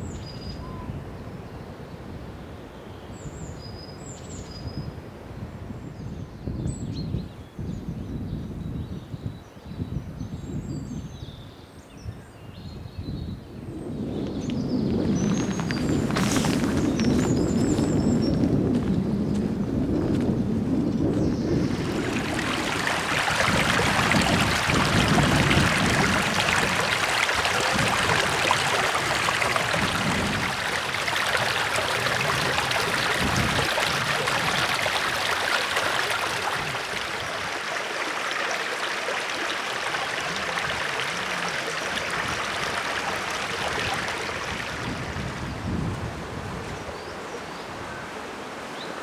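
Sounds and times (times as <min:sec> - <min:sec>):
wind gusts on microphone: 0:00.0 - 0:49.0
water rushing: 0:21.5 - 0:45.6.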